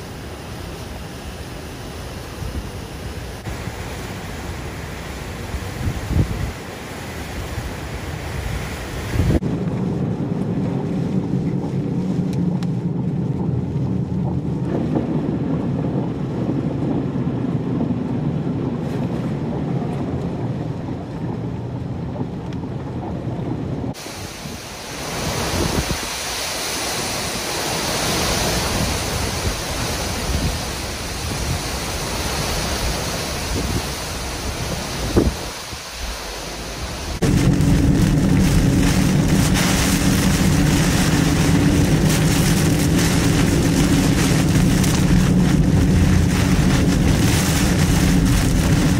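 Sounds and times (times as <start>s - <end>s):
wind hissing through trees: 0.0s - 13.7s, 23.5s - 48.9s
heavy rain: 0.0s - 48.9s
vehicle rumbling through rain: 9.3s - 25.6s, 27.4s - 48.9s
tyres splashing through water: 23.9s - 48.9s.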